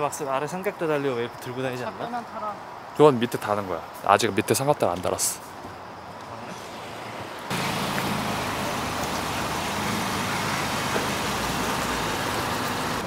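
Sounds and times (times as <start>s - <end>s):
rushing vehicle noise: 6.6s - 13.0s.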